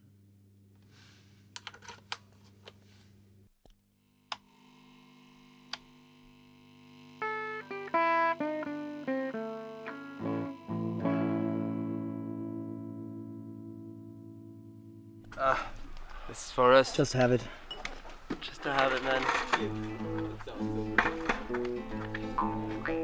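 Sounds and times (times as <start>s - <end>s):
guitar amplifier humming: 4.2s - 23.0s
electric guitar single notes: 7.2s - 15.4s, 19.6s - 23.0s.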